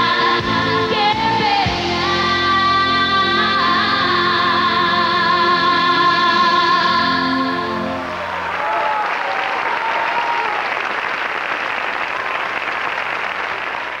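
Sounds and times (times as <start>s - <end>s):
live pop song: 0.0s - 8.2s
audience applauding: 8.0s - 14.0s.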